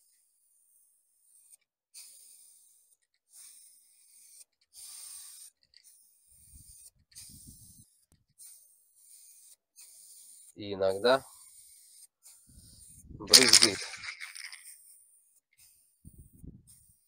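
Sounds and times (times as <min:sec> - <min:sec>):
spray can hissing: 0:13.3 - 0:14.7.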